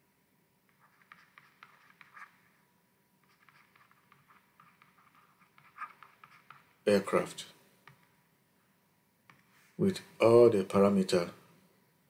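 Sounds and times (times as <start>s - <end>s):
stylus scratching and tapping screen: 0.7s - 2.6s, 3.2s - 8.3s, 9.2s - 9.8s.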